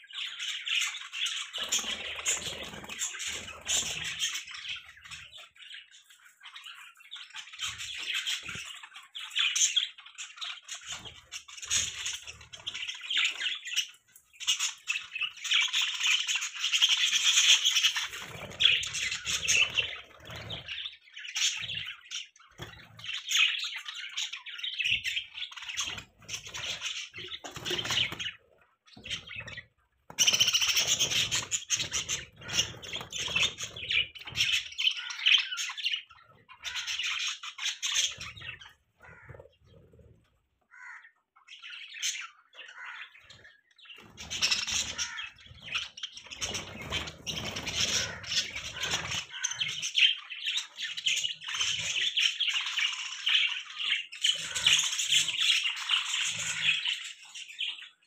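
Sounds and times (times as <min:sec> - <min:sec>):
budgerigars chattering and chirping: 0:00.0 - 0:58.0.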